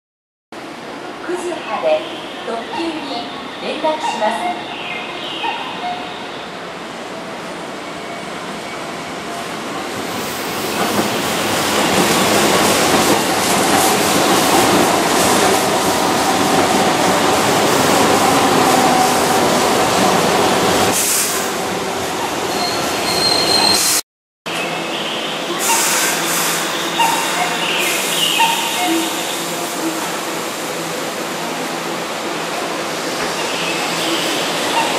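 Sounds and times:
train wheels on track: 0:02.7 - 0:24.0, 0:24.6 - 0:34.9
wheel squeal: 0:22.5 - 0:24.0.

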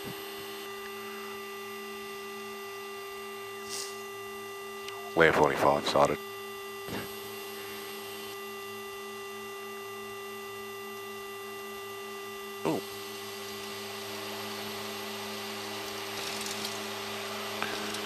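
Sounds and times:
turboprop cockpit drone: 0:00.0 - 0:18.0.

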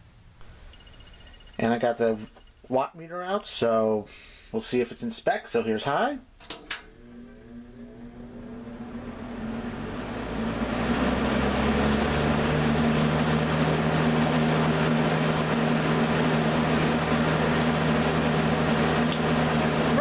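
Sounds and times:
box fan motor hum and air rush: 0:06.8 - 0:20.0.

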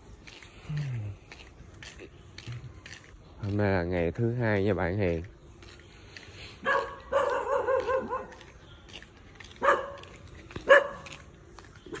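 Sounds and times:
small dog barking: 0:06.6 - 0:08.5, 0:09.6 - 0:11.2.

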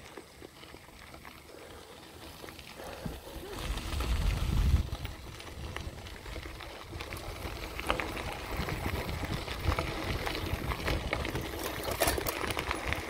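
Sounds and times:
bicycle tyres crunching on gravel: 0:00.0 - 0:13.0
bike rattling over bumps: 0:00.0 - 0:13.0.

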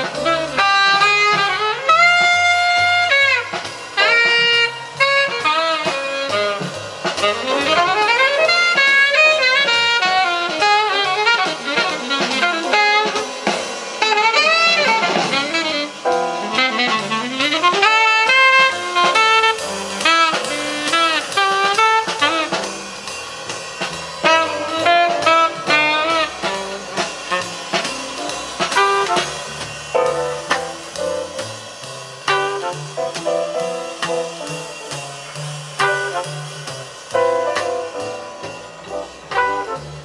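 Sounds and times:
drum kit: 0:00.0 - 0:40.0
saxophone playing fast runs: 0:00.0 - 0:40.0.

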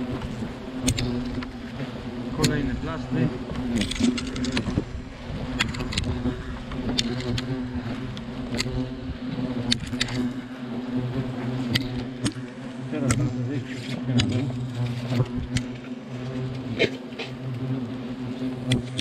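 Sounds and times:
hornets buzzing: 0:00.0 - 0:19.0
sharp ticks: 0:00.8 - 0:01.5, 0:02.4 - 0:02.6, 0:05.5 - 0:08.8, 0:09.6 - 0:10.4, 0:11.6 - 0:14.5, 0:18.6 - 0:19.0.

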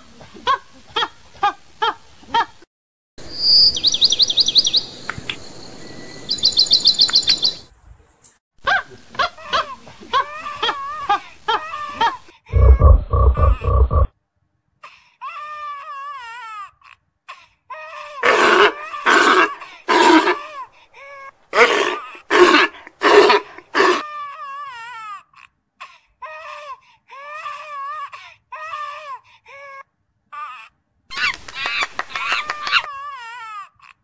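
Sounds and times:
infant monkey screaming: 0:18.2 - 0:20.6, 0:21.6 - 0:24.3.

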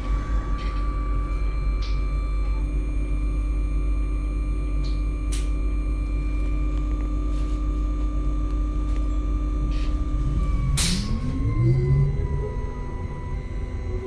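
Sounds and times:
high whine: 0:00.0 - 0:14.0
bus engine rumbling: 0:09.5 - 0:14.0.

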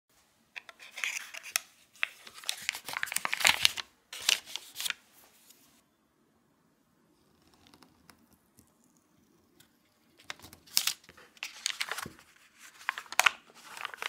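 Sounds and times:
foil wrapper crinkling: 0:10.3 - 0:14.0.

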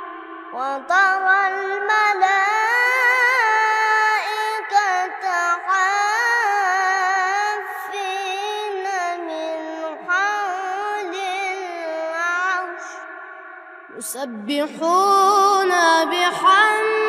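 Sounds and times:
boy chanting recitation: 0:00.0 - 0:17.0.

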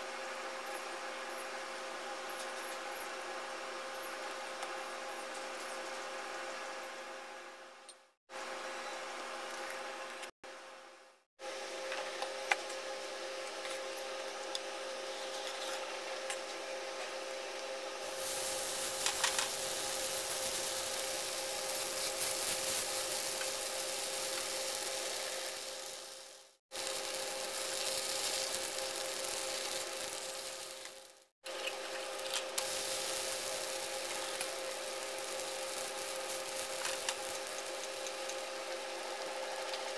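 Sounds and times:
steady hum: 0:06.1 - 0:39.9
dough hissing on hot griddle: 0:18.0 - 0:39.8.

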